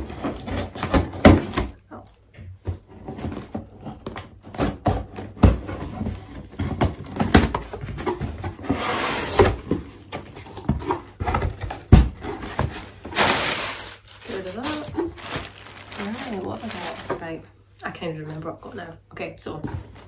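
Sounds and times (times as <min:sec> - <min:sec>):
cardboard tearing: 0:00.0 - 0:01.8, 0:02.9 - 0:09.8, 0:10.4 - 0:17.2.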